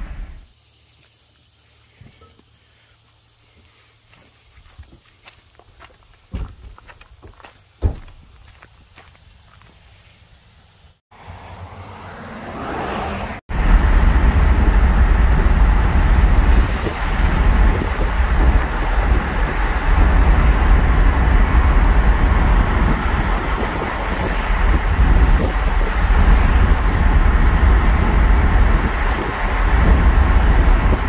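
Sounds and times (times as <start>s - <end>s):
truck rumble inside cab: 0.0s - 0.4s, 13.1s - 31.0s.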